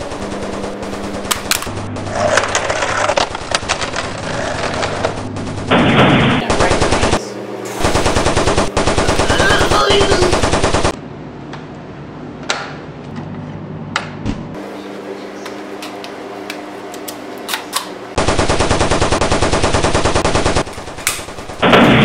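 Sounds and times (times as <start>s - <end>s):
machine-gun fire: 0.0s - 11.0s, 18.2s - 22.0s.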